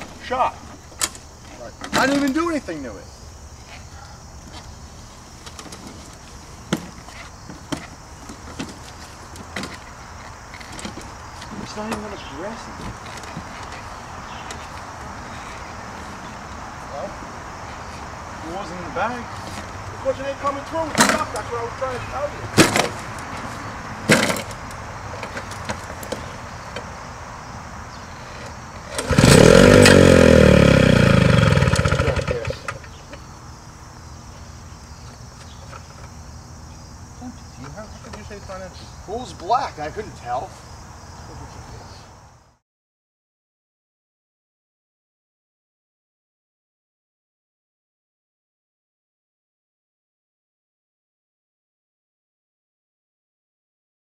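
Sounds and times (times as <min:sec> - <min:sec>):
lawnmower engine running: 0:28.4 - 0:33.3
lawnmower pull start: 0:28.8 - 0:33.0.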